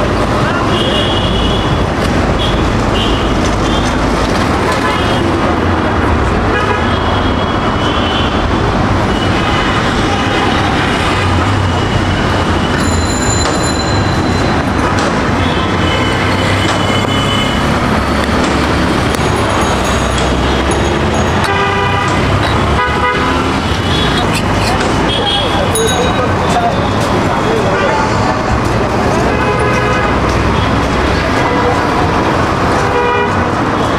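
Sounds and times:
vehicle horns honking: 0.6s - 1.8s, 2.4s - 4.0s, 6.5s - 11.0s, 19.8s - 28.1s, 29.2s - 31.9s, 32.7s - 33.9s
rumble of passing engines: 9.8s - 33.8s.

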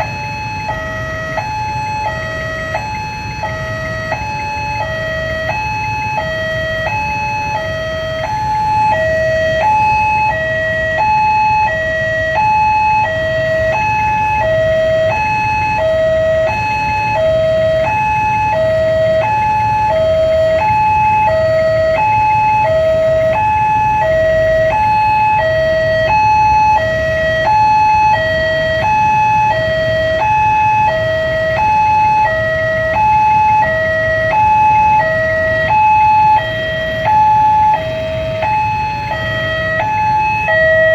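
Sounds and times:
level crossing alarm high-low tone: 0.0s - 40.9s
road traffic rumble: 0.0s - 40.9s.

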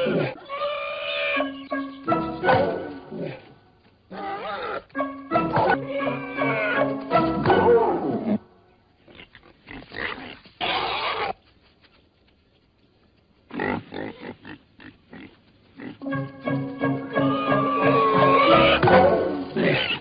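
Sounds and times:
warthog squealing: 0.0s - 3.4s, 4.1s - 8.3s, 9.1s - 11.4s, 16.9s - 20.0s.

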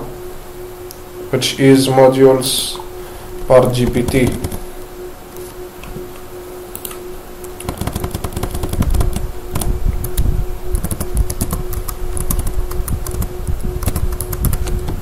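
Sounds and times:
keyboard typing clicks: 4.0s - 4.6s, 7.6s - 10.2s.

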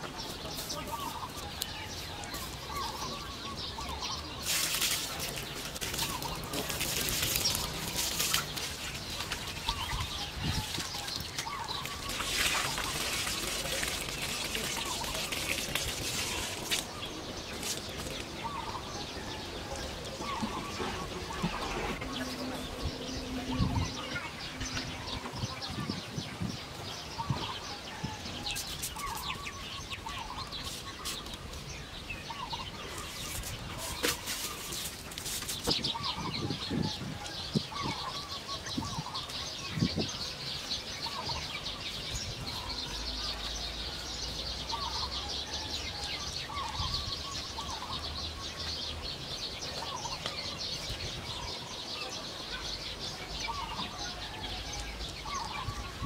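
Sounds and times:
dry soil scraping and rustling: 0.0s - 19.0s, 28.3s - 38.8s.

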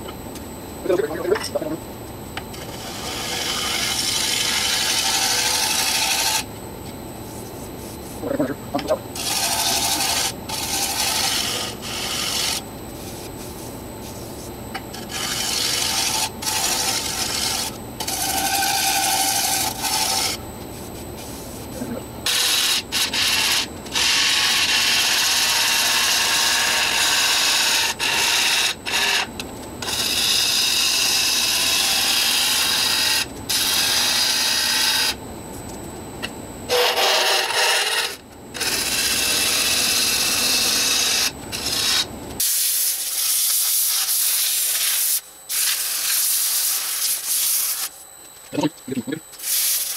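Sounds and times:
lathe motor humming: 2.4s - 6.7s, 7.7s - 13.4s, 14.7s - 21.0s, 21.7s - 35.2s, 36.7s - 42.1s
lathe tool cutting wood: 2.6s - 6.5s, 9.2s - 12.6s, 15.0s - 20.4s, 22.3s - 35.2s, 36.7s - 42.1s.

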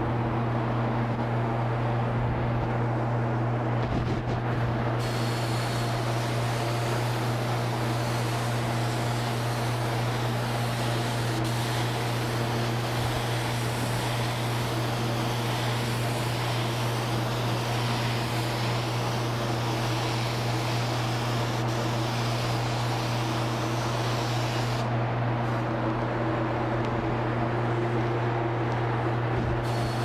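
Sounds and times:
low hum of air supply: 0.0s - 30.0s
spray gun air hiss: 4.9s - 25.6s, 29.6s - 30.0s.

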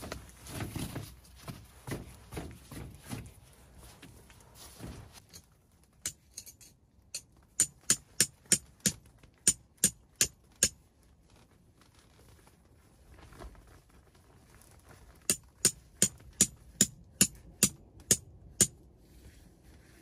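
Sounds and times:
tent pegs being hammered: 6.0s - 10.8s, 15.3s - 18.9s.

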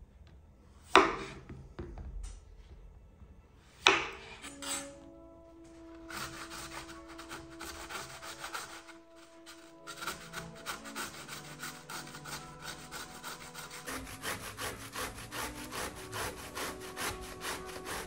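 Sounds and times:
vegetable grating on grater: 5.9s - 18.0s.

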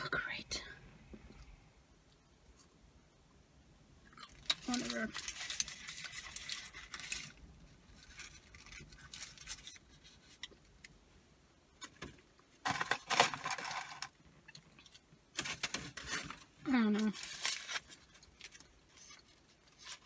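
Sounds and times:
paper wrapper crinkling: 4.3s - 10.7s, 12.6s - 14.2s, 14.8s - 20.0s.

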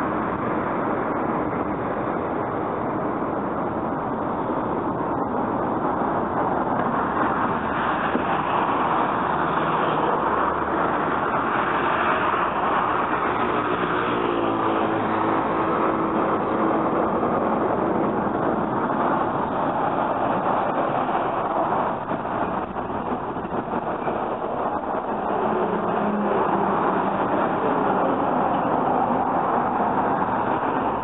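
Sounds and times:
road traffic passing: 0.0s - 31.0s.

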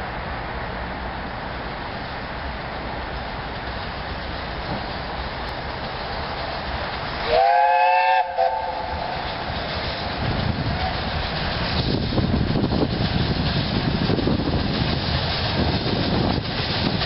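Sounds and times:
locomotive rumble: 0.0s - 17.0s
steam whistle blast: 7.2s - 9.2s.

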